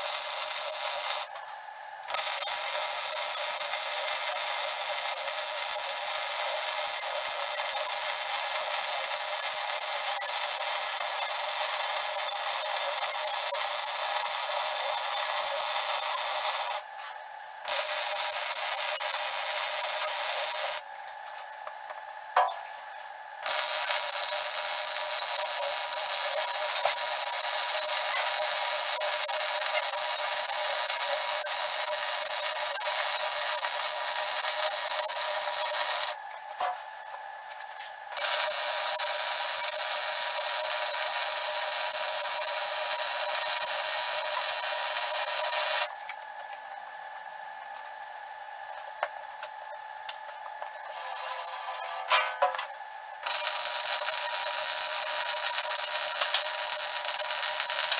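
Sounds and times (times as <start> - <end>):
welding arc hissing: 0.0 - 1.4, 2.1 - 16.9, 17.7 - 20.9, 23.4 - 36.2, 38.2 - 45.9, 53.2 - 57.9.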